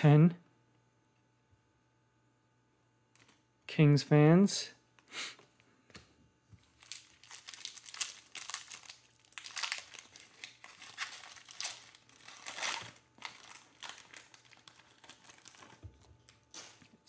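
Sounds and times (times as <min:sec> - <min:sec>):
foil wrapper crinkling: 0:06.6 - 0:16.8.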